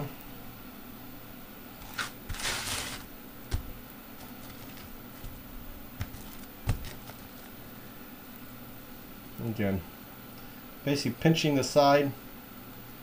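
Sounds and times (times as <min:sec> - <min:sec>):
low room hum: 0:00.0 - 0:13.0
plastic wrap rustle: 0:01.8 - 0:07.6.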